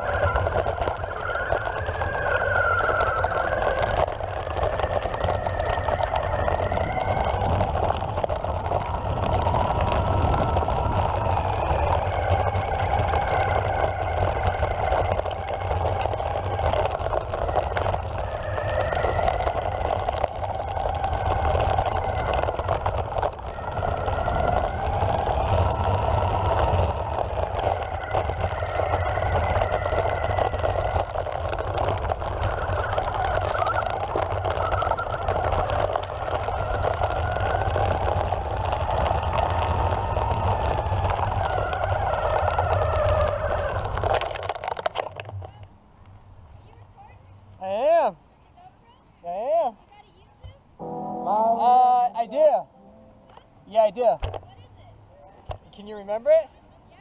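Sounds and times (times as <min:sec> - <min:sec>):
low rumble: 0:00.0 - 0:42.8, 0:50.8 - 0:53.7
electric skateboard motors whining: 0:00.0 - 0:45.5.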